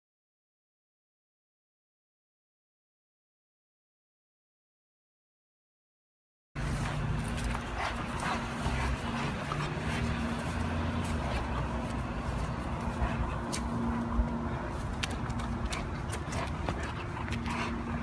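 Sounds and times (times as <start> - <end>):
footsteps walking briskly: 6.6 - 18.0
steady low rumble: 6.6 - 18.0.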